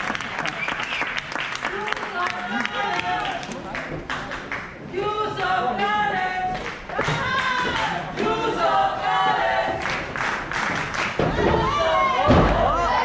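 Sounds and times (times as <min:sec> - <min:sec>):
hand claps: 0:00.0 - 0:04.7, 0:09.8 - 0:11.4
crowd chanting: 0:07.0 - 0:10.1.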